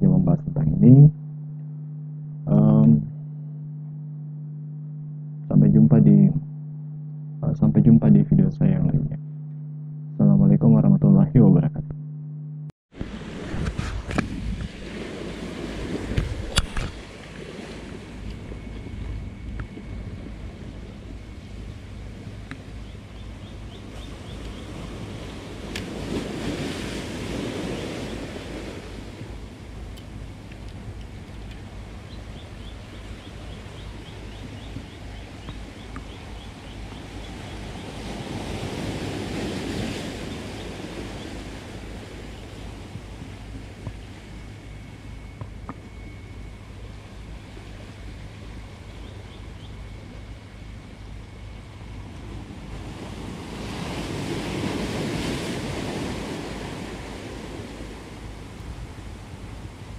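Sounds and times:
waves washing over rocks: 24.9s - 29.5s.

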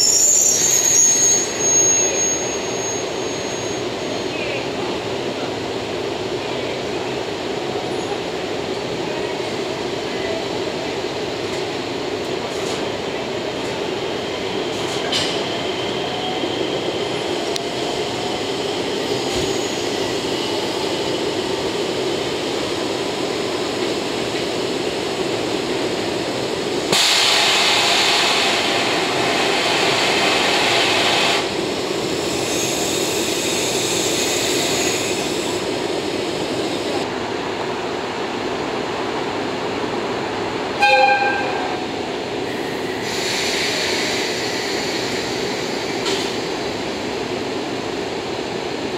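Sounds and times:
loud hiss: 26.6s - 37.0s, 42.4s - 47.1s.

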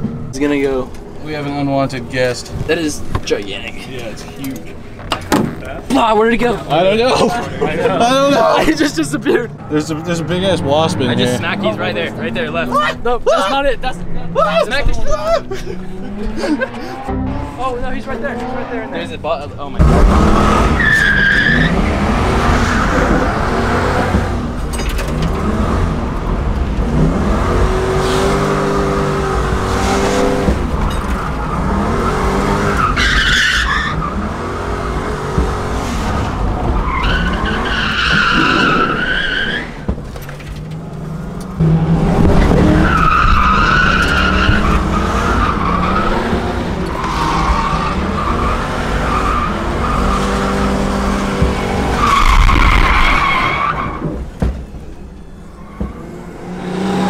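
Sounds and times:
car engine revving: 8.9s - 57.0s
tyres squealing: 20.7s - 24.2s, 27.8s - 41.8s, 42.5s - 57.0s.

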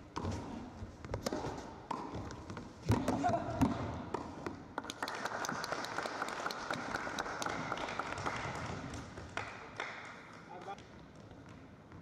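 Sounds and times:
spectators clapping: 4.7s - 11.6s.

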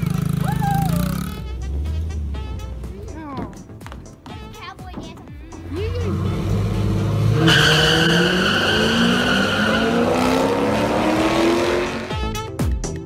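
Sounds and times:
drag racing cars accelerating: 5.6s - 12.3s
high squeal: 7.4s - 10.4s.

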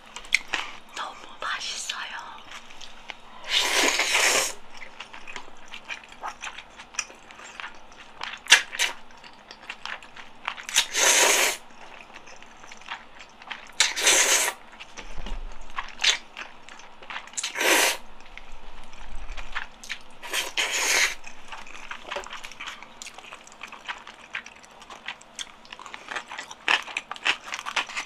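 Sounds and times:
wet chewing: 2.4s - 28.0s
loud noodle slurps: 3.5s - 4.6s, 10.8s - 11.6s, 13.8s - 14.6s, 17.4s - 18.0s, 20.3s - 21.2s.

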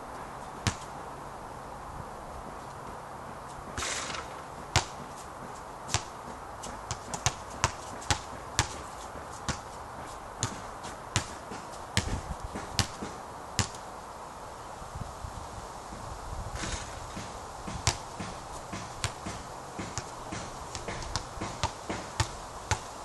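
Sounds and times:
basketball bouncing on court: 3.7s - 5.2s, 5.9s - 9.7s, 10.4s - 13.8s, 16.6s - 22.9s
basketball swishing through net: 3.8s - 5.0s, 16.6s - 22.8s.

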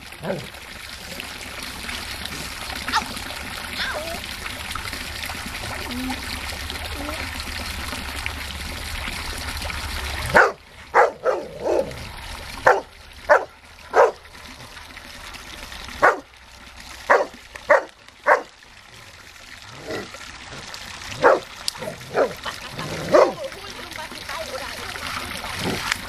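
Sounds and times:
dog barking: 10.3s - 11.9s, 12.6s - 14.2s, 16.0s - 16.3s, 17.1s - 18.5s, 21.2s - 21.5s, 22.1s - 22.4s.

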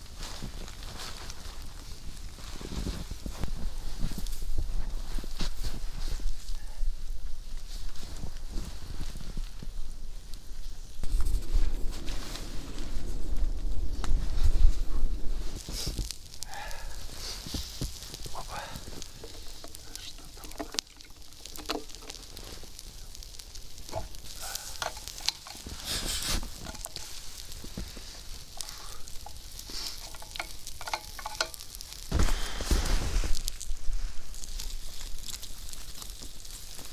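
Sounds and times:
log fire crackling: 0.0s - 36.9s.

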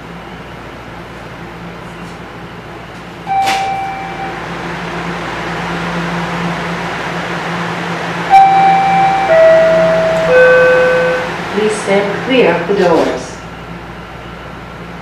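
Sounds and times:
subway car hum and hiss: 0.0s - 15.0s
door-closing chime: 3.3s - 4.4s, 8.3s - 11.3s
held electronic tone: 3.3s - 4.4s, 8.3s - 11.4s.

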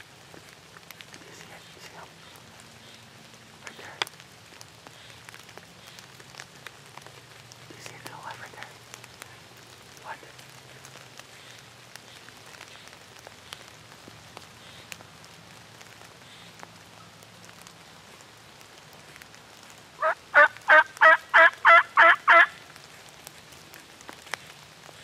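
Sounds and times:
dripping rain ticks: 0.0s - 25.0s
turkey yelps: 20.0s - 22.6s.

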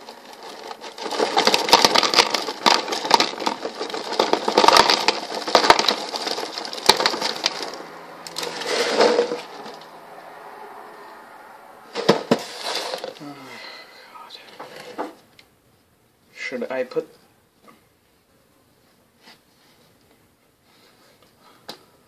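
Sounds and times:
cereal pouring into a bowl: 0.0s - 9.9s.

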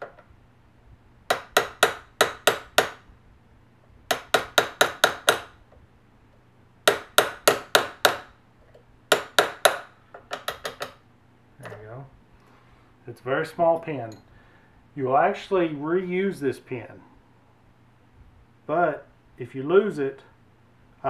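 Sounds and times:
punch tapping on metal pin: 9.1s - 11.0s.

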